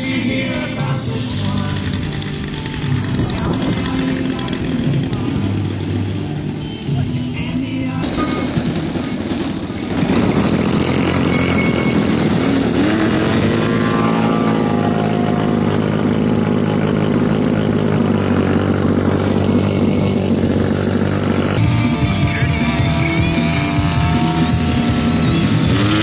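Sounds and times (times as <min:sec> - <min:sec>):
model airplane engine droning: 0:00.7 - 0:26.0.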